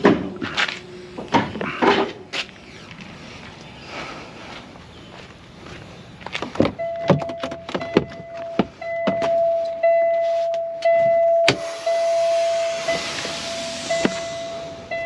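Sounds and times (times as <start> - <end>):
knocks and clunks in truck cab: 6.5 - 9.5
warning buzzer: 10.9 - 15.0
air brake hiss: 11.5 - 14.9.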